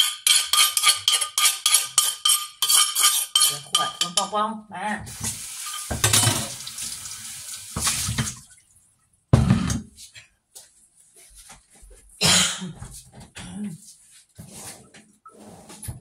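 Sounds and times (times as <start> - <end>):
tap water splashing into sink: 5.1 - 8.7.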